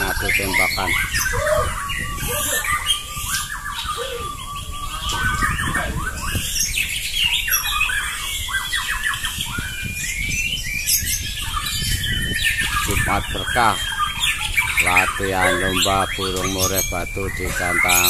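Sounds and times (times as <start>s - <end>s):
shama birds singing: 0.0s - 18.0s.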